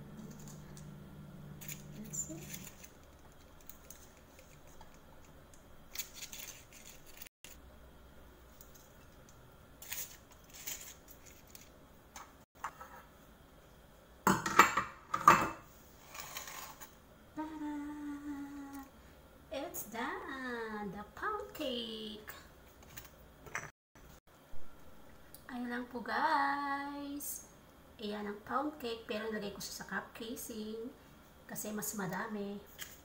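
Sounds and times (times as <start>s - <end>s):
paper cupcake liners rustling: 1.6s - 7.6s, 9.8s - 11.7s.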